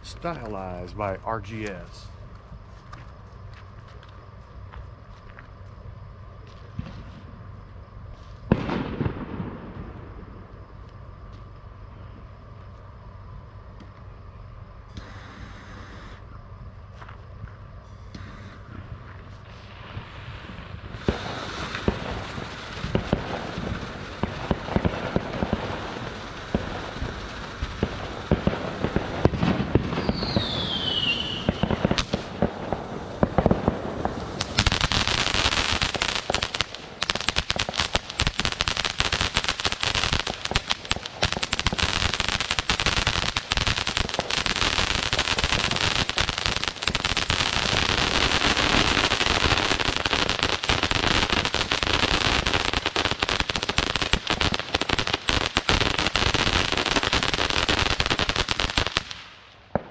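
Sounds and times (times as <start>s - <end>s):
firework fountain hissing and crackling: 13.9s - 16.4s, 18.0s - 59.9s
falling whistle: 30.0s - 31.6s.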